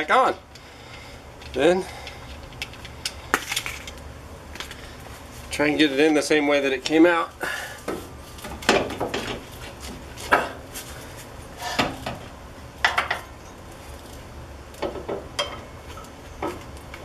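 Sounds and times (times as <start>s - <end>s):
metal clanks and knocks: 8.4s - 9.4s, 14.8s - 15.7s.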